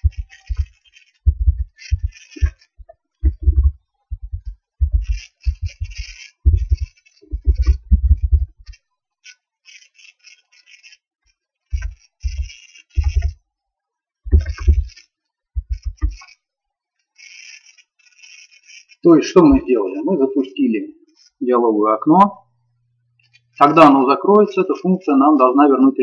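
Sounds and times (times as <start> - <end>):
computer keyboard typing: 0.0 - 8.8, 11.7 - 13.4, 14.3 - 15.0.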